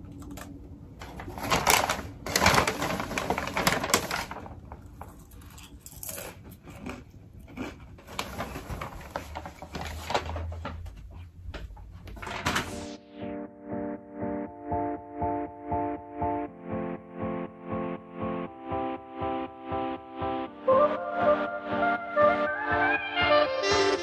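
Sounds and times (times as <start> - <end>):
paper bag rustling and crinkling: 1.0 - 5.4, 8.0 - 11.0.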